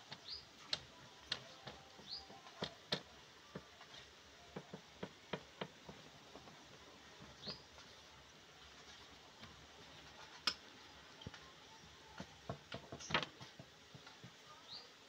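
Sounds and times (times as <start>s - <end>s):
bird chirping: 0.1s - 0.7s, 1.4s - 2.7s, 7.2s - 8.0s.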